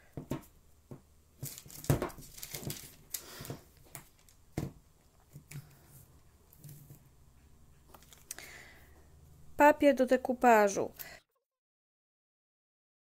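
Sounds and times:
tissue paper crinkling: 0:01.4 - 0:04.4.

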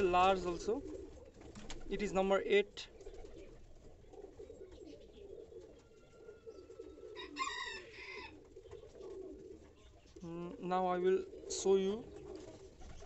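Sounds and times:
pigeons cooing: 0:00.0 - 0:13.0
chicken call: 0:07.2 - 0:08.4.

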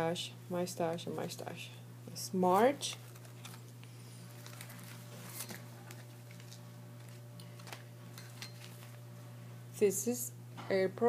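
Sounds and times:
steady low hum: 0:00.0 - 0:11.0
paper pieces tapping and rustling: 0:04.4 - 0:09.0.

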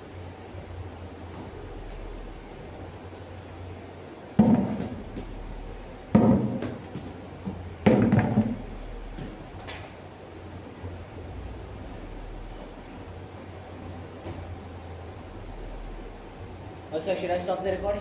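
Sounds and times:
steady low hum: 0:00.0 - 0:18.0
loud thuds with rattle: 0:04.4 - 0:05.2, 0:06.1 - 0:09.4.

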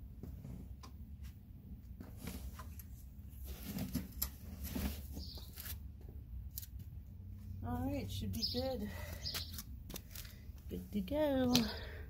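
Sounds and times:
rustles: 0:00.2 - 0:05.9.

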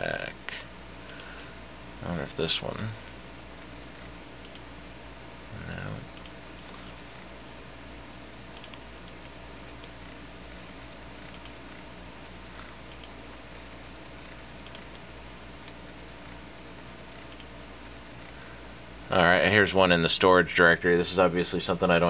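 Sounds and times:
steady low hum: 0:00.0 - 0:22.0
computer mouse clicks: 0:04.4 - 0:04.7, 0:06.1 - 0:06.8, 0:08.2 - 0:10.0, 0:11.3 - 0:11.6, 0:12.6 - 0:13.2, 0:14.2 - 0:15.0, 0:17.2 - 0:17.5.

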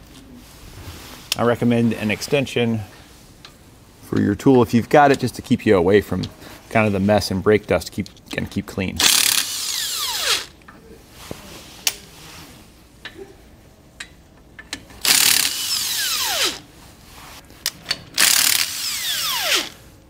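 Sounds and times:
power tool whining: 0:09.0 - 0:10.5, 0:15.0 - 0:16.6, 0:18.2 - 0:19.8.

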